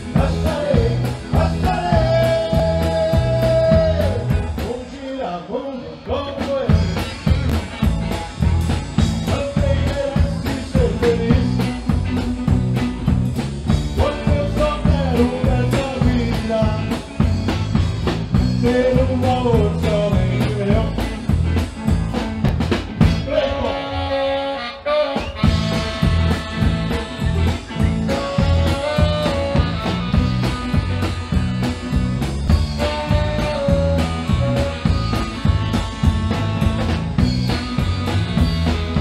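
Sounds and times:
drum kit: 0.0 - 5.2, 6.1 - 24.3, 25.1 - 39.0
person singing: 0.0 - 7.1, 9.1 - 11.9, 13.9 - 17.4, 18.4 - 21.2, 23.0 - 27.1, 27.9 - 30.6
bass: 0.0 - 39.0
guitar: 0.0 - 39.0.

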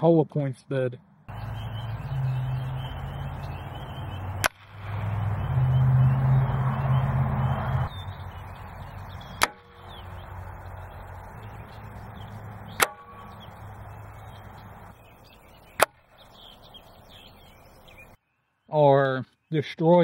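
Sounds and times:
low hum: 1.3 - 18.2
air rifle shots: 12.7 - 13.3.

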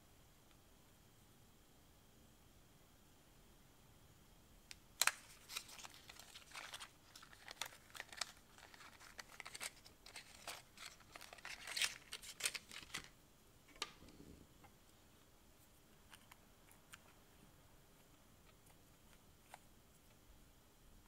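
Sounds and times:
cardboard box crinkling: 5.0 - 13.1.

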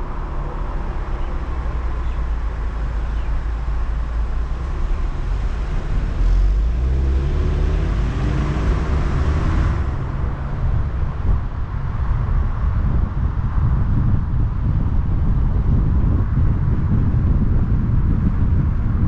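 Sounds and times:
car engine accelerating: 0.0 - 13.6
road noise: 0.0 - 19.0.

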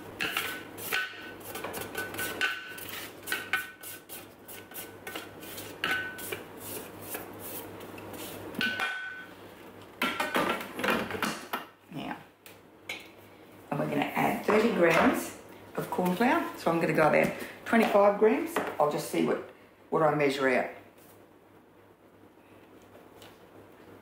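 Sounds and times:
spatula scraping metal bowl: 0.2 - 7.6.

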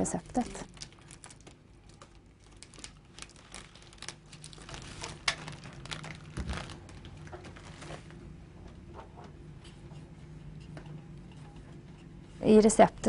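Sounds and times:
food package crinkling: 0.2 - 8.2.

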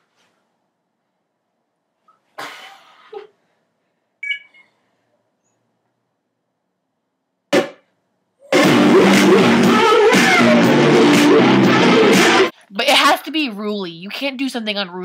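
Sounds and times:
sharp knock: 7.5 - 7.8
loud guitar music: 8.5 - 12.5.

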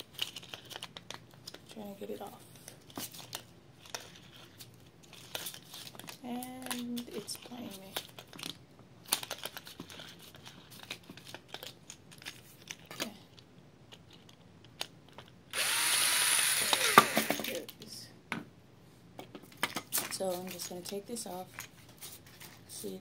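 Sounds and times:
cordless drill whining: 15.5 - 17.5.

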